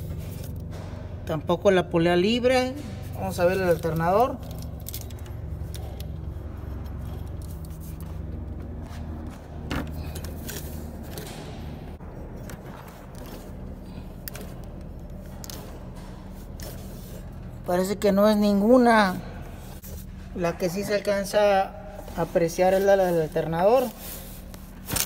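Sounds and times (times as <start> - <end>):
low hum: 0.0 - 25.0
pulley bearing rough running noise: 2.8 - 17.8.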